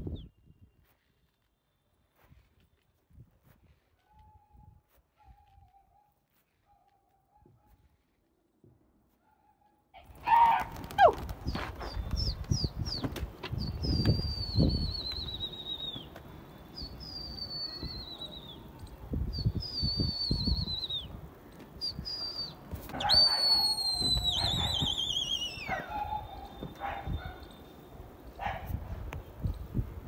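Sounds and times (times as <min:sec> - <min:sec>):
shrill falling whistles: 0:13.6 - 0:18.7, 0:19.3 - 0:21.1, 0:21.8 - 0:27.8.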